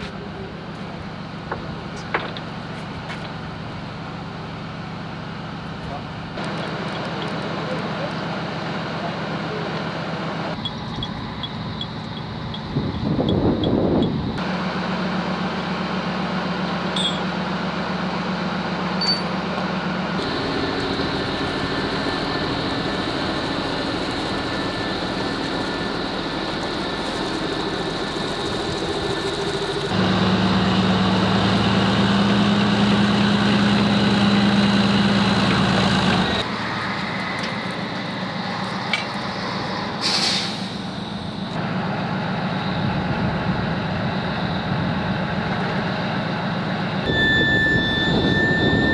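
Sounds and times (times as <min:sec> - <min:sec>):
diesel engines running: 0:00.0 - 0:48.9
short hiss: 0:40.0 - 0:40.9.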